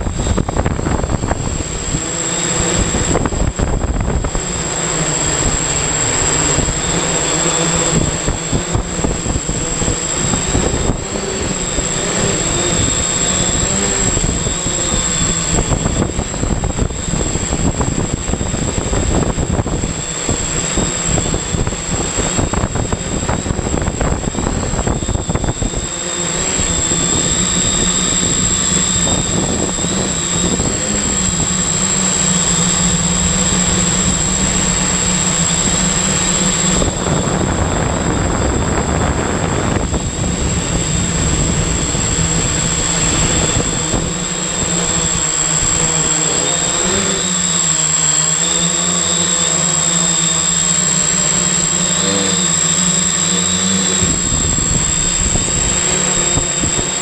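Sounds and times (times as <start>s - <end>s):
drone motors buzzing: 0.0s - 57.0s
thin high whine: 0.0s - 57.0s.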